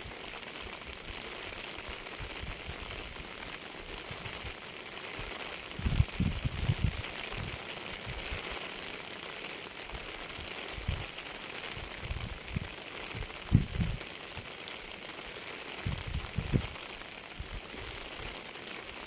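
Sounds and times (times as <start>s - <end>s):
rain falling steadily: 0.0s - 19.0s
heavy raindrops thudding: 5.2s - 8.5s, 11.7s - 14.6s, 15.8s - 16.8s.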